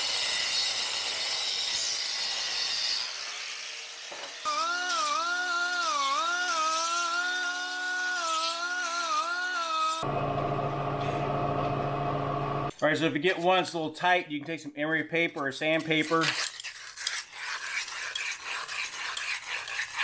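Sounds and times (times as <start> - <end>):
small power tool whining: 0.0 - 12.7.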